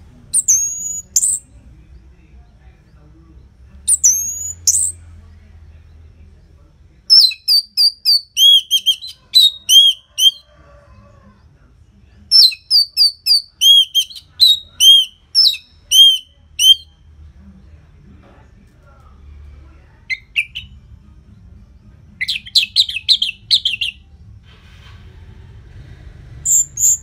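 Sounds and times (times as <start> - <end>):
thrush whistled song: 0.4 - 1.5, 3.9 - 5.0, 7.1 - 10.4, 12.4 - 17.0, 26.4 - 27.0.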